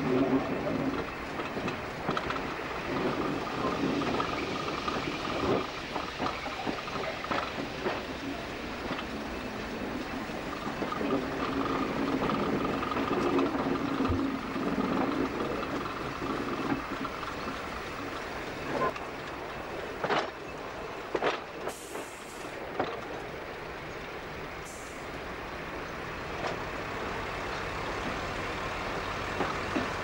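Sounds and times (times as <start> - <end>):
train wheels clacking: 0.0 - 23.4
train engine hum: 0.0 - 30.0.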